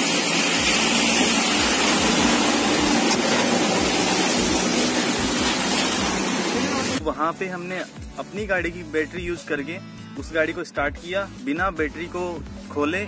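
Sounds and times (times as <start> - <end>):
passing highway traffic: 0.0 - 7.0
car engines running: 0.6 - 7.0.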